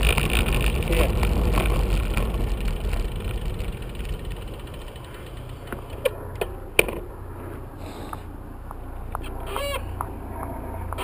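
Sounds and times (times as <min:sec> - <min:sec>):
bicycle clicks: 0:00.0 - 0:07.0
tyre and wind rumble: 0:00.0 - 0:11.0.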